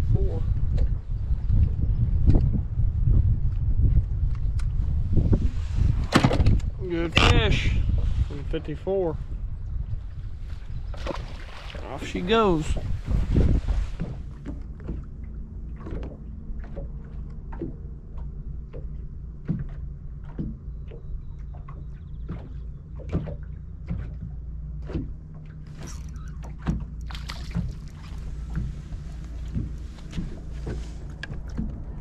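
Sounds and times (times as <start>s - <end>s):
splashing water: 11.0s - 12.4s, 19.5s - 32.0s
waves knocking against boat hull: 11.0s - 32.0s.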